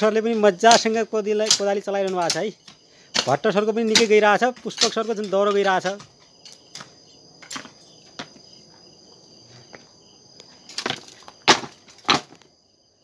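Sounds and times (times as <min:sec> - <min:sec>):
high-pitched insect trilling: 0:00.0 - 0:11.4
hoe blades thudding into soil: 0:10.7 - 0:12.5.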